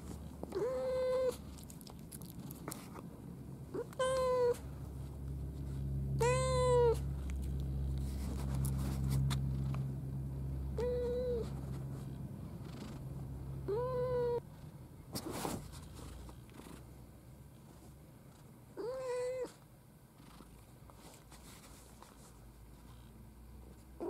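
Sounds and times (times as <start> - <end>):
low steady rumble: 0.0 - 24.0
cat meowing: 0.5 - 1.4, 3.7 - 4.6, 6.2 - 7.0, 10.8 - 11.5, 13.7 - 14.4, 18.8 - 19.6.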